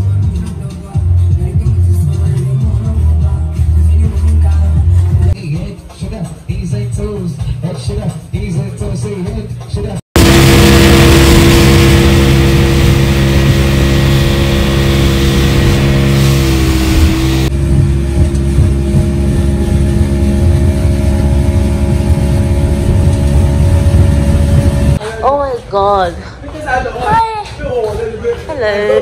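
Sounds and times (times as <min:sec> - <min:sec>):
car engine drone: 0:10.2 - 0:25.0.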